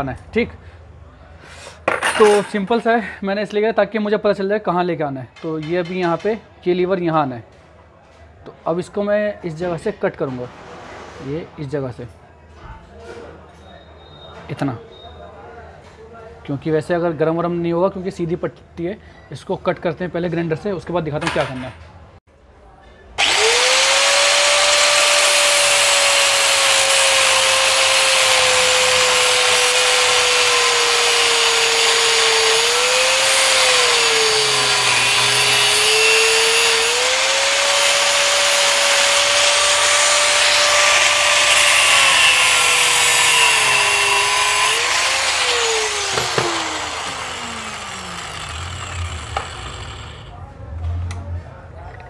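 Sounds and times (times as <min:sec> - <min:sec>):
angle grinder cutting metal: 0:23.2 - 0:50.3.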